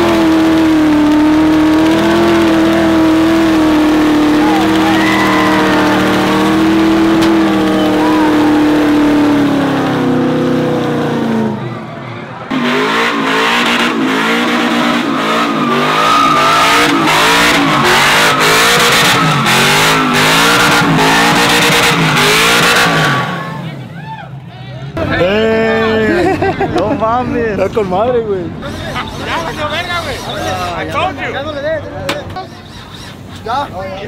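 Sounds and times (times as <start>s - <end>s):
truck engine high revving: 0.0s - 24.0s, 28.5s - 31.6s
truck engine revving up and down: 0.0s - 26.8s, 27.4s - 31.8s.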